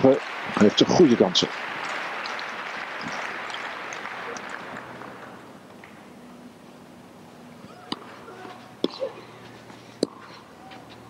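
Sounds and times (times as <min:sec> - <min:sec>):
stadium crowd applauding: 0:00.0 - 0:06.0.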